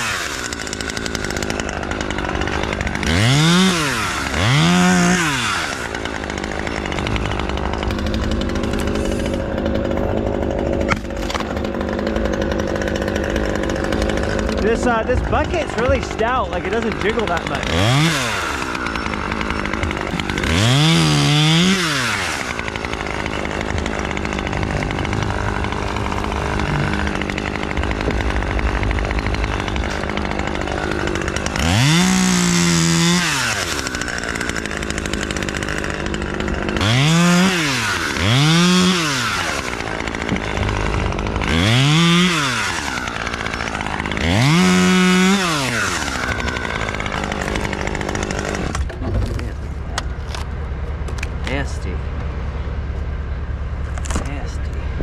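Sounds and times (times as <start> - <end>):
chainsaw idling and revving: 0.0 - 55.0.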